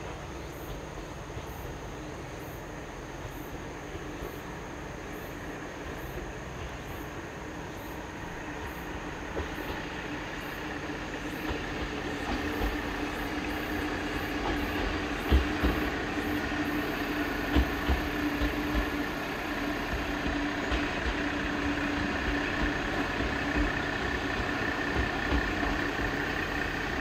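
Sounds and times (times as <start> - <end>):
diesel railcar engine hum: 0.0 - 27.0
wheels thumping over rail joints: 8.2 - 27.0.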